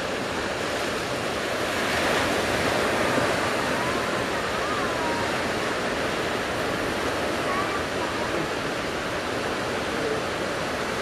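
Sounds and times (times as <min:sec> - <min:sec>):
heavy surf breaking: 0:00.0 - 0:11.0.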